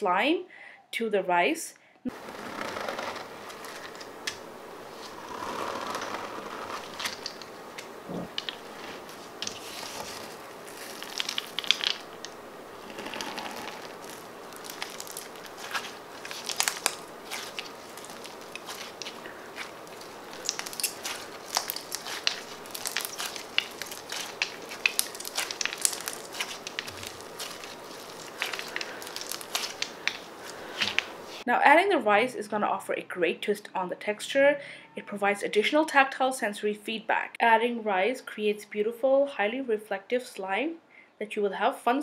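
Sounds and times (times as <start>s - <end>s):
slime with rice crunching: 8.1s - 31.5s.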